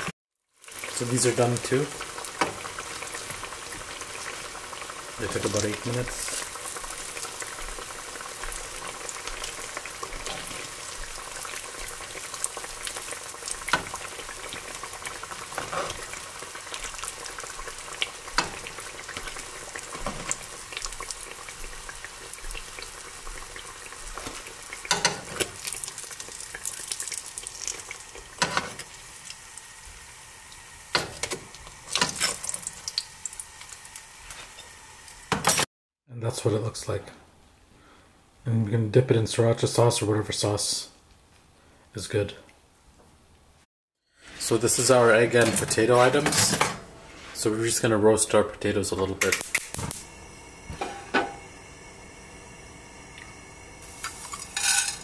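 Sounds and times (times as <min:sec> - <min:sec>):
vegetables deep-frying in oil: 0:00.0 - 0:35.6, 0:48.7 - 0:55.0.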